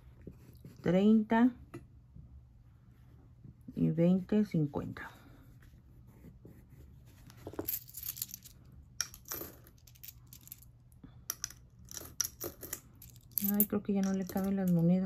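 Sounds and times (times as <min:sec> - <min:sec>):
coins clinking: 0:07.5 - 0:10.7, 0:11.3 - 0:15.0
coins dropping into coin bank: 0:07.6 - 0:10.7, 0:11.3 - 0:15.0.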